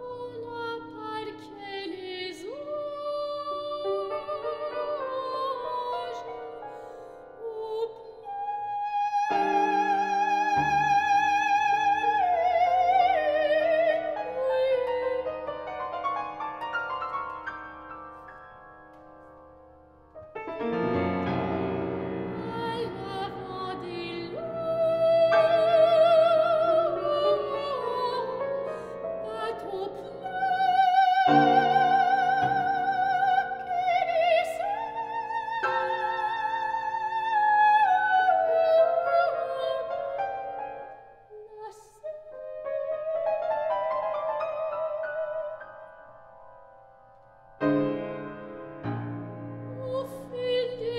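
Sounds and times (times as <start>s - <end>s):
woman singing operatically: 0.0s - 6.6s, 7.4s - 15.5s, 22.3s - 40.2s, 41.3s - 45.6s, 49.7s - 50.9s
grand piano: 0.0s - 50.9s.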